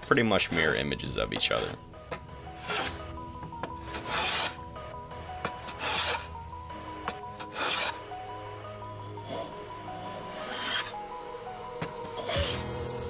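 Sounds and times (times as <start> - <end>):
faint background music: 0.0 - 13.0
hand plane rasping on wood: 2.5 - 3.0, 3.8 - 4.6, 5.4 - 6.3, 7.4 - 8.0, 10.2 - 11.0, 12.2 - 12.6.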